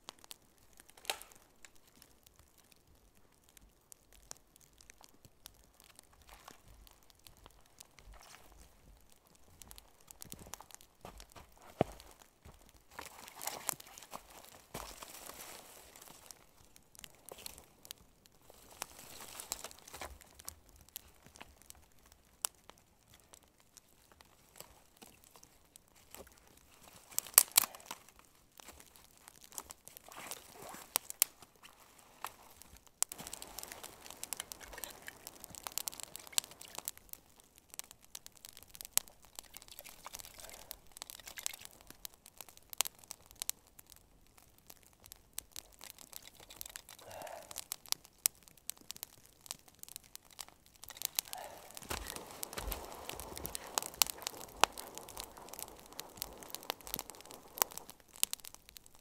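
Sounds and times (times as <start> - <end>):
dry sticks rustling and snapping: 0.0 - 59.0
twig fire crackling and popping: 0.0 - 59.0
boots crunching in snow: 51.8 - 54.8.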